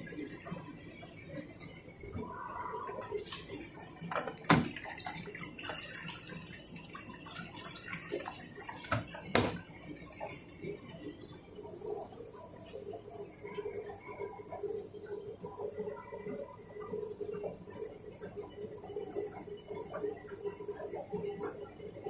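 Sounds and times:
water running into washing machine: 0.0 - 22.0
sharp knocks: 8.9 - 9.6.

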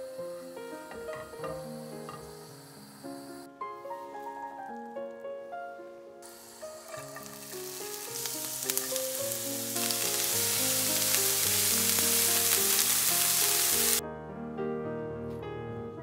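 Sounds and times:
onion sizzling in a frying pan: 0.0 - 3.4, 6.2 - 14.0.

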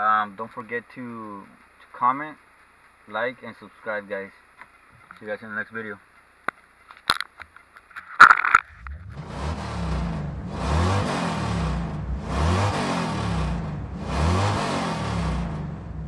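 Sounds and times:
car engine revving: 8.6 - 16.0.

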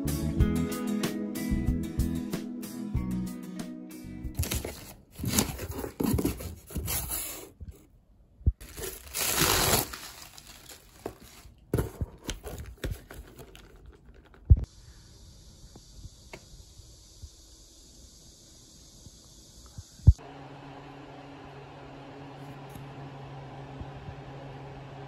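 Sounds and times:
cardboard tearing: 4.4 - 7.6, 8.6 - 13.7
plastic bags crinkling: 8.6 - 14.5
faint steady hiss: 14.7 - 20.2.

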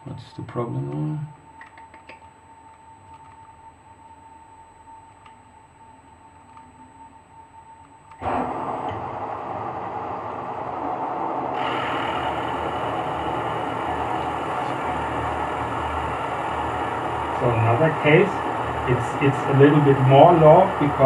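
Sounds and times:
cutter hissing through wood: 8.2 - 21.0
milling machine running: 8.2 - 21.0.

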